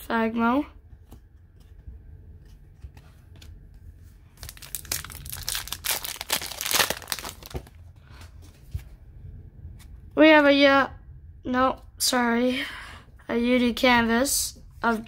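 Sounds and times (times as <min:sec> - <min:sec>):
plastic wrapping crinkling: 0:04.3 - 0:07.8.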